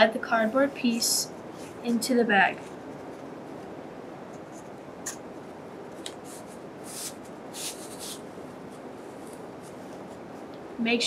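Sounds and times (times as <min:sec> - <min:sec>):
steady background hiss: 0:00.0 - 0:11.0
cardboard scraping against fabric: 0:06.2 - 0:10.2.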